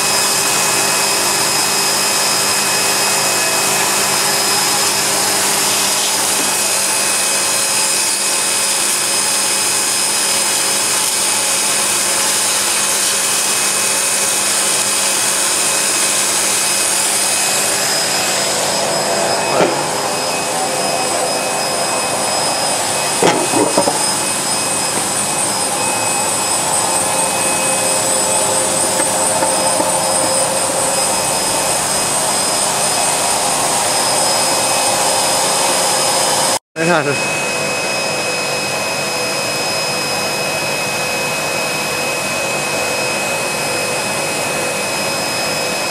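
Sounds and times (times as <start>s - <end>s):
industrial machine line whirring: 0.0s - 36.6s.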